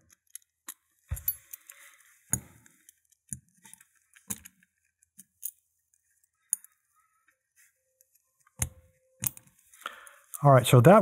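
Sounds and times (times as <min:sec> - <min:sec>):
small metal parts clicking: 0:00.0 - 0:01.8, 0:02.8 - 0:06.9, 0:08.1 - 0:09.6.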